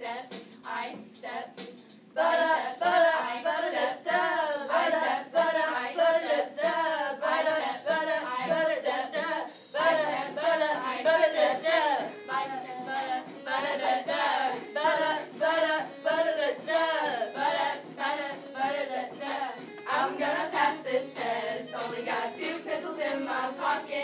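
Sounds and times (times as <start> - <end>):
girls rapping and singing: 0.0 - 1.6, 2.2 - 24.0
rhythmic beat: 0.0 - 24.0.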